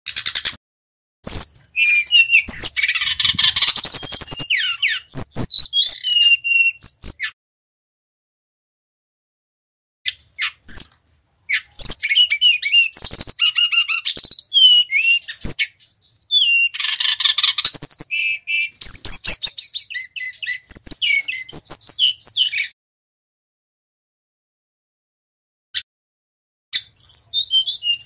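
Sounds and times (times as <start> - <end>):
bird singing whistled notes: 1.2 - 7.4, 10.1 - 22.8, 26.7 - 28.0.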